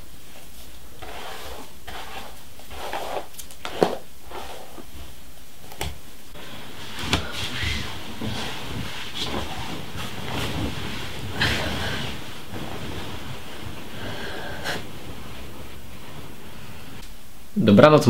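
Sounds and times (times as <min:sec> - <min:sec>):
steady low hiss: 0:00.0 - 0:18.0
bedding rustling: 0:04.3 - 0:17.0.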